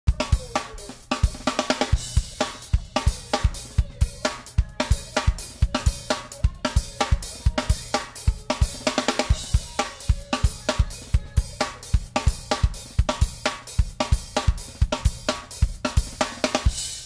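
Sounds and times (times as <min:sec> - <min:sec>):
music with fast drum beat: 0:00.0 - 0:17.0.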